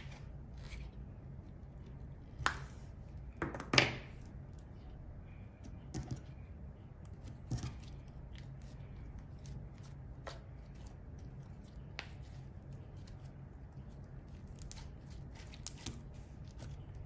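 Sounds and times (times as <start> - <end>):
low steady hum: 0.0 - 17.0
slime stretched and kneaded by hand: 7.0 - 17.0.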